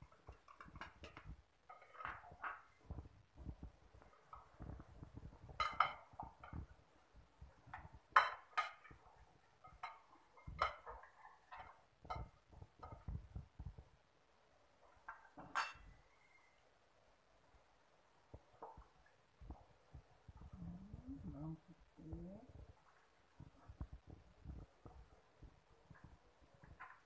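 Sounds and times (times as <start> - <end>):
metal spoon clinking glass bowl: 15.4 - 16.0.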